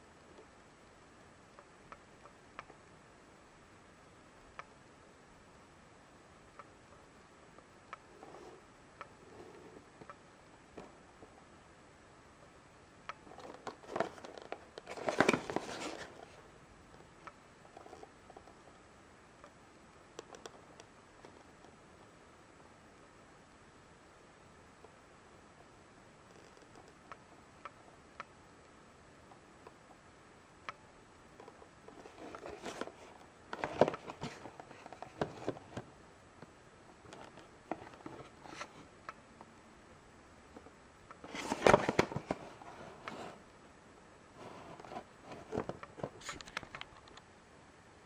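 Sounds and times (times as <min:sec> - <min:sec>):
cardboard boxes rustling and scraping: 0:13.4 - 0:16.4, 0:32.0 - 0:35.8, 0:41.3 - 0:43.4.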